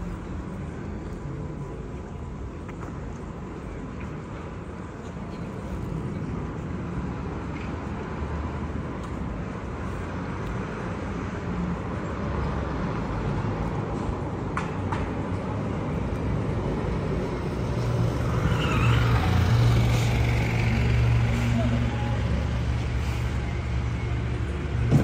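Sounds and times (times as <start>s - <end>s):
city traffic hum: 0.0s - 25.0s
garbage truck diesel engine: 18.6s - 25.0s.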